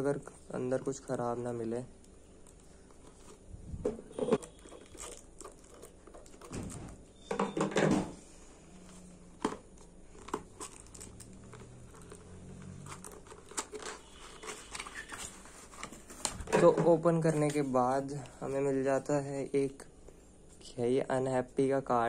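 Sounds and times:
cardboard rustling and scraping: 0:02.7 - 0:07.0, 0:08.8 - 0:19.0
tape tearing: 0:04.3 - 0:06.6, 0:10.2 - 0:16.5.

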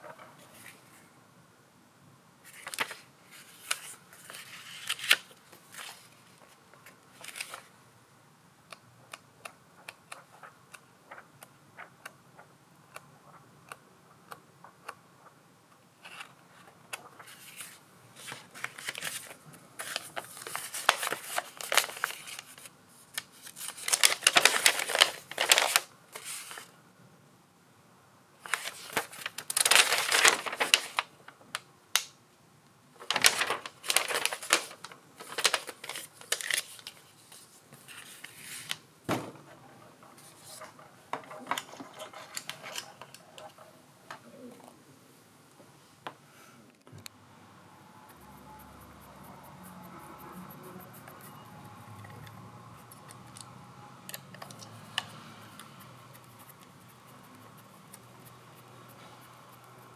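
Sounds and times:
paper rustling and crackling: 0:02.4 - 0:07.7, 0:16.0 - 0:26.7, 0:28.4 - 0:31.6, 0:33.0 - 0:38.8, 0:40.0 - 0:43.6
thump: 0:39.1 - 0:39.5.

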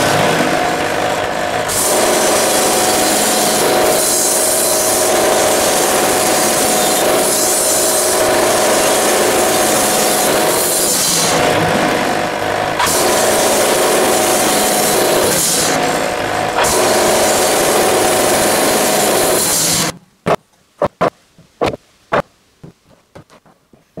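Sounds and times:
bandsaw mill cutting log: 0:00.0 - 0:21.8
sharp knocks: 0:19.9 - 0:24.0.

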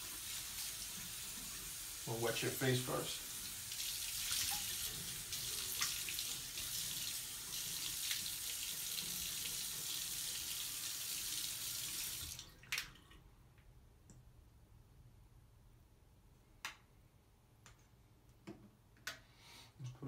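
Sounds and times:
sink tap running: 0:00.0 - 0:12.4
water splashing on face: 0:03.7 - 0:06.9.

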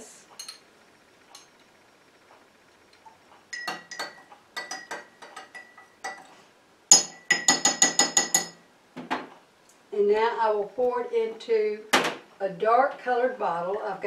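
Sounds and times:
spoon clinking against glass jar: 0:00.4 - 0:00.6, 0:03.5 - 0:06.3, 0:06.9 - 0:08.6.

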